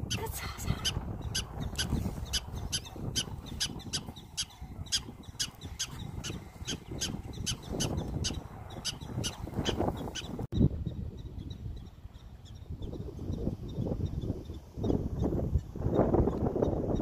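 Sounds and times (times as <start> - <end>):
prairie dog barking: 0.8 - 10.3.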